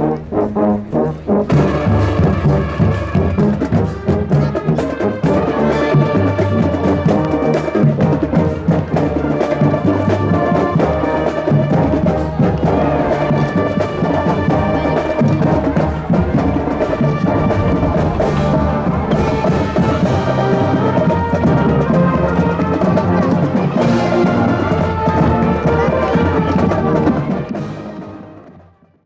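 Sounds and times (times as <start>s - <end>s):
marching brass band playing: 0.0s - 29.0s
steady drum beat: 1.5s - 27.7s.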